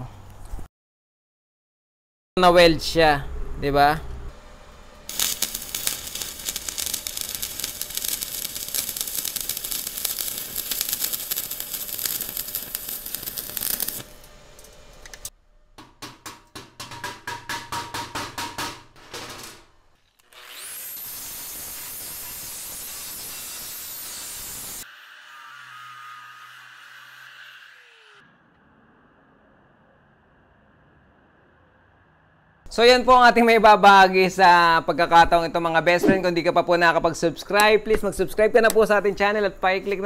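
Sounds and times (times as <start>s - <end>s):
stick welding crackling and sizzling: 5.0s - 15.3s, 20.2s - 24.9s
short crackling pulses: 5.1s - 14.1s
steady hiss: 5.1s - 14.1s.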